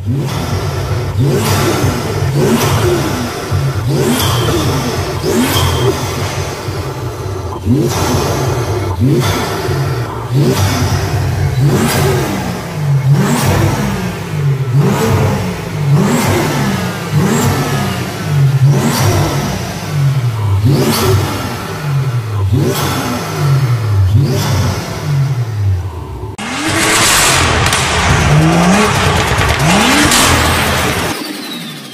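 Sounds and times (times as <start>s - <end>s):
sharp exhaust cracks: 0.0s - 25.1s, 25.8s - 31.3s
car engine revving: 0.0s - 31.9s
loud even rushing noise: 26.4s - 31.3s.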